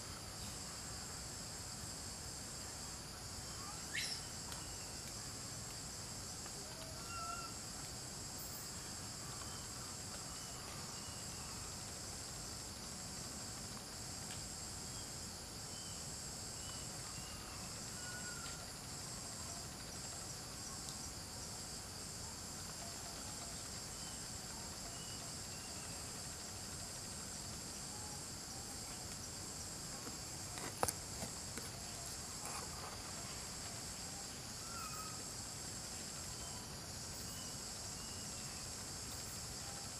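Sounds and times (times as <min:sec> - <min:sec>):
insect chorus: 0:00.0 - 0:39.9.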